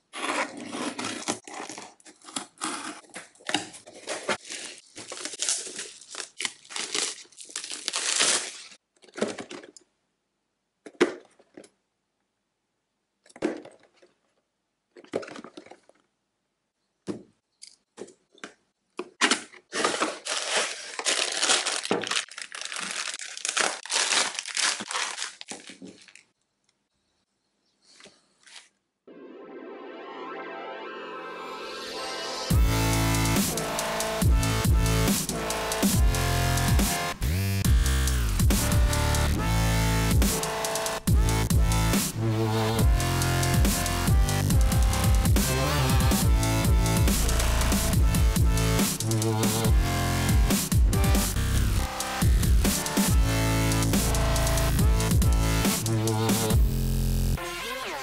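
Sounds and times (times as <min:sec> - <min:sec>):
packing tape tearing: 0:00.0 - 0:08.8, 0:19.2 - 0:26.3
packaging crinkling: 0:00.2 - 0:09.7, 0:19.2 - 0:26.4.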